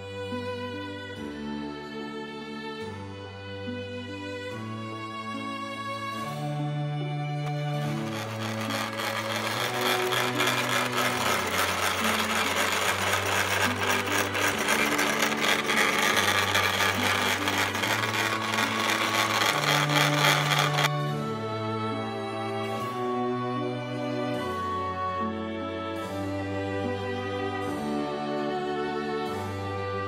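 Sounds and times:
slow background music: 0:00.0 - 0:30.0
sewing machine clattering: 0:07.5 - 0:20.9.

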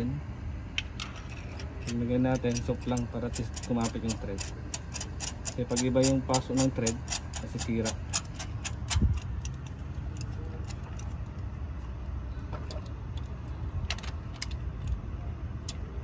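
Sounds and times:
steady low hum: 0:00.0 - 0:16.0
ratchet clicking: 0:01.5 - 0:11.2.

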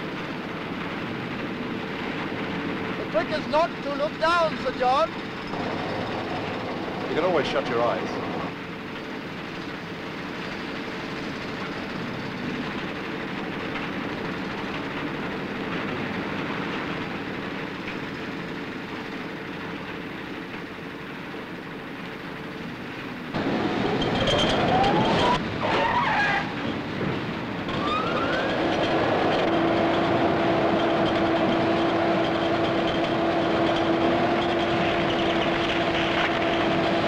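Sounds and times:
construction machinery noise: 0:00.0 - 0:37.0
winch whining: 0:03.1 - 0:08.6, 0:23.4 - 0:26.9, 0:27.6 - 0:37.0.

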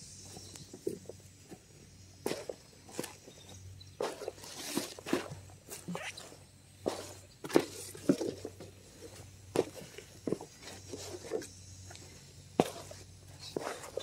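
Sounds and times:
shovel scraping truck bed: 0:04.0 - 0:11.5.

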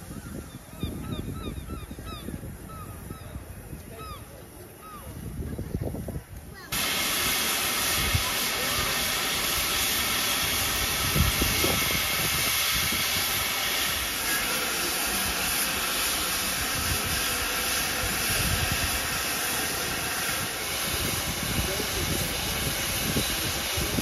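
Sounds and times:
steam locomotive hissing: 0:06.7 - 0:24.0.

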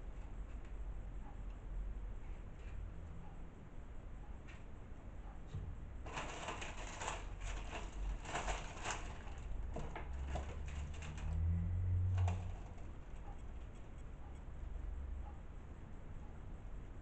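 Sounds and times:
low hum: 0:10.7 - 0:17.0.

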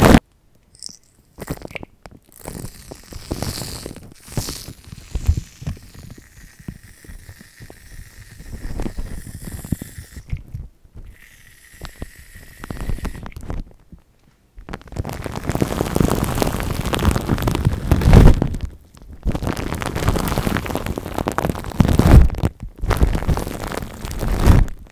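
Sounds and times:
foam crackling and popping: 0:00.8 - 0:14.0, 0:14.6 - 0:24.9
aerosol can spraying foam: 0:11.2 - 0:13.3.

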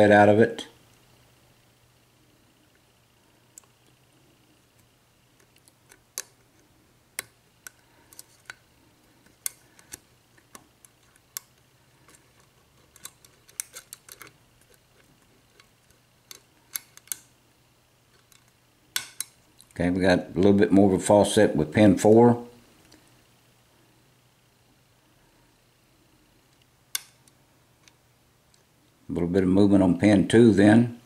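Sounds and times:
lock pick metallic clicks: 0:09.3 - 0:17.3, 0:18.2 - 0:19.8.

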